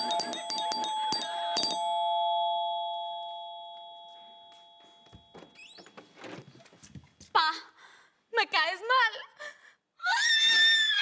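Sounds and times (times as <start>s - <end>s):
doorbell chime ding-dong: 0.0s - 5.6s.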